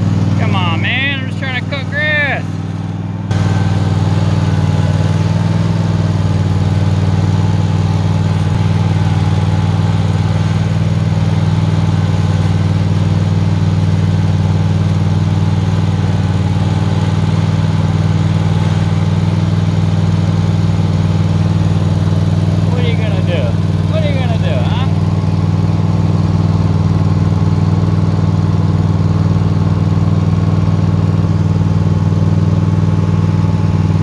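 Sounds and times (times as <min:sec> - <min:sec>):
lawn mower engine running: 0:00.0 - 0:34.0.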